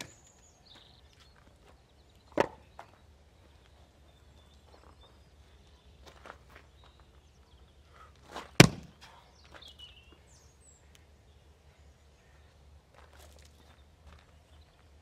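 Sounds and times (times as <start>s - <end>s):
maul cracking into log: 8.5s - 9.0s.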